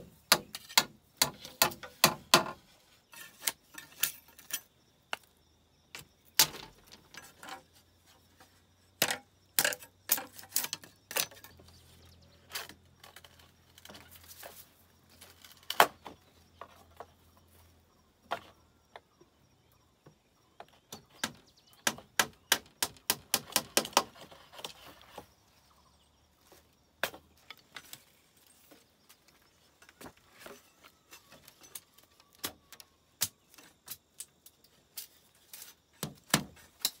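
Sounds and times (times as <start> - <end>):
hammer striking nails into bamboo: 0.3 - 2.6, 20.9 - 24.2, 36.0 - 37.0.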